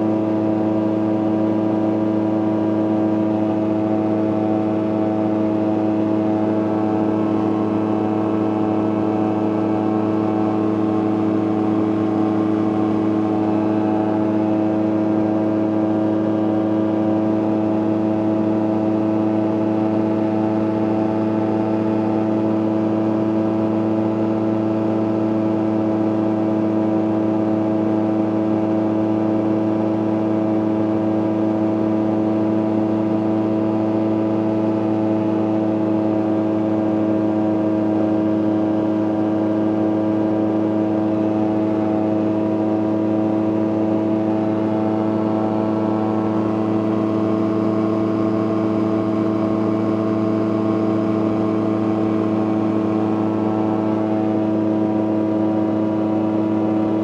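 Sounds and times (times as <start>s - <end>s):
aircraft engine and propeller: 41.2s - 57.0s.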